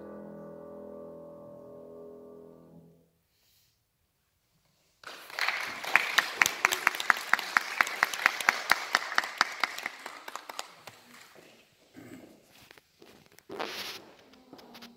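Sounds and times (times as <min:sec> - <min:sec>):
audience applauding: 0:05.0 - 0:11.6
hands clapping loudly: 0:05.0 - 0:11.6.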